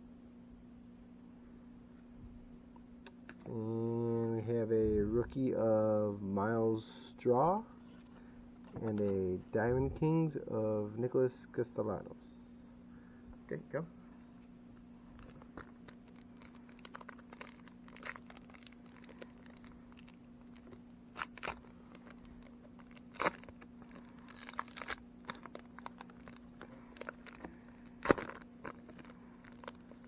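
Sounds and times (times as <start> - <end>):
plastic wrapper crinkling and tearing: 15.1 - 30.0.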